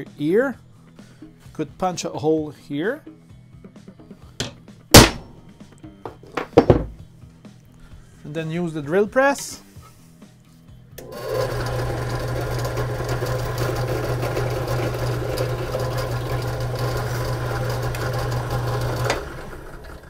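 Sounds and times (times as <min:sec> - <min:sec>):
drill press motor humming: 0:11.0 - 0:20.0.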